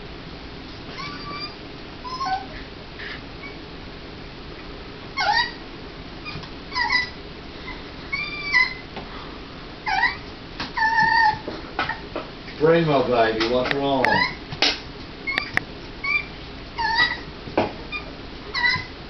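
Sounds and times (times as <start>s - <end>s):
puppy whimpering: 0.9s - 3.6s, 5.2s - 5.6s, 6.2s - 8.9s, 9.8s - 12.1s, 14.0s - 14.4s, 15.2s - 17.3s, 17.9s - 19.0s.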